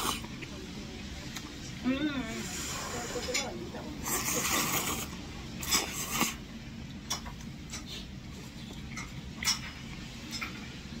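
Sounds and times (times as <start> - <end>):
person slurping noodles: 0.0 - 0.3, 4.0 - 6.4
chewing: 3.1 - 6.4.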